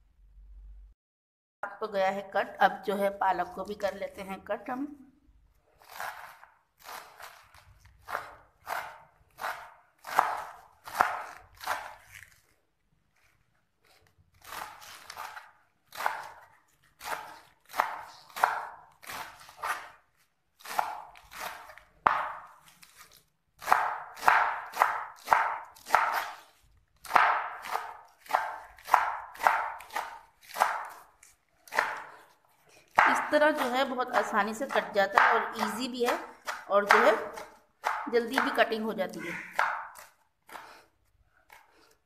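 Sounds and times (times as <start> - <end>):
knife chopping on wooden board: 5.9 - 12.3, 14.4 - 20.0, 20.6 - 40.8.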